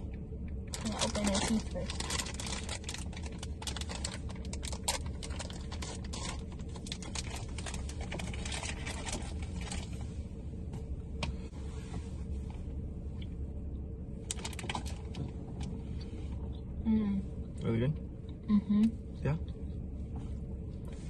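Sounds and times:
steady low hum: 0.0s - 21.0s
plastic candy bag crinkling: 0.7s - 9.9s, 14.3s - 15.2s.

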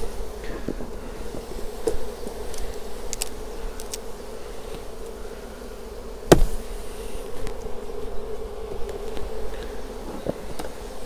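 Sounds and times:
honeybees buzzing: 0.0s - 11.0s
sharp knock: 6.3s - 6.6s.

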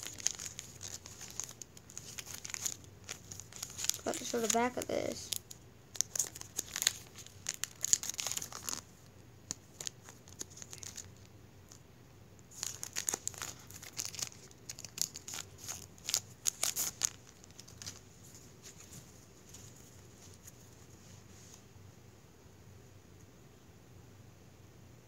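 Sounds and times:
foil wrapper crinkling and tearing: 0.0s - 8.9s, 9.5s - 11.3s, 12.5s - 19.0s.

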